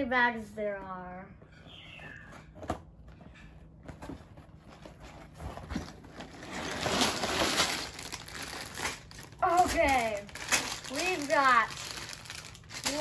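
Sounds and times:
cardboard scraping: 3.9s - 7.6s
plastic bags rustling: 4.4s - 13.0s.

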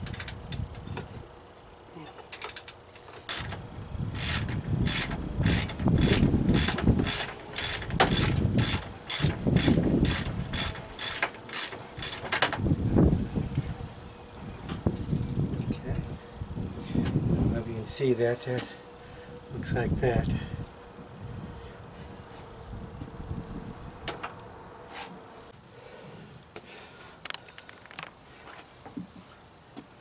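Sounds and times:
ratchet wrench clicking: 2.3s - 3.6s, 4.2s - 12.3s.

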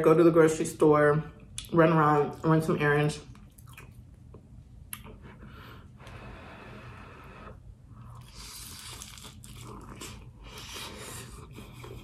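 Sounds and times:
crunchy food chewing: 8.1s - 10.9s.

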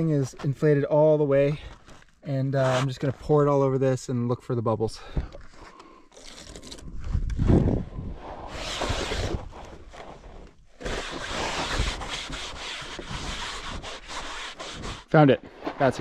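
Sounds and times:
hand rubbing on air mattress: 8.4s - 16.0s.

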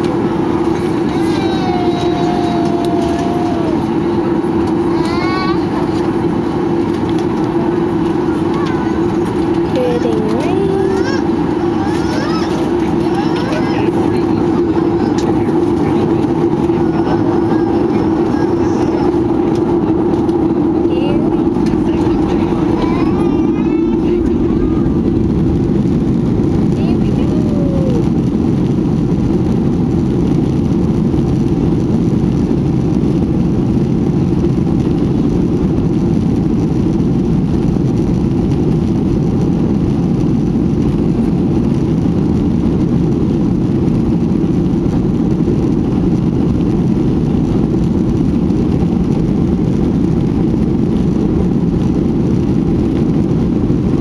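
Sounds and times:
jet engine rumble in cabin: 0.0s - 54.0s.

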